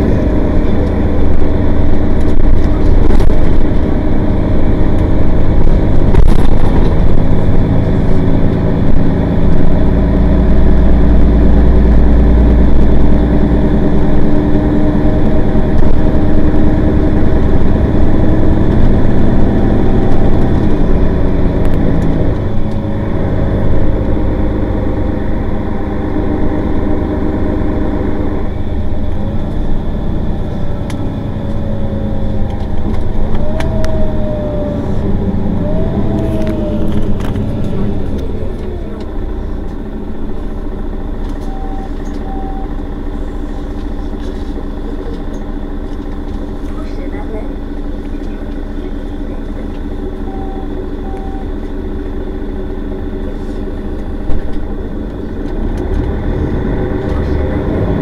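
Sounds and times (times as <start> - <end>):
whine gliding in pitch: 0.0 - 44.0
bus engine under load: 0.0 - 58.0.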